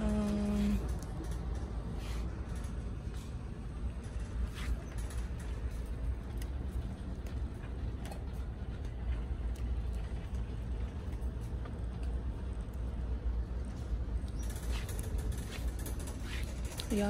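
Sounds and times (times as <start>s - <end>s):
shopping cart wheels rumbling: 0.0s - 17.0s
wire basket rattling: 14.4s - 17.0s.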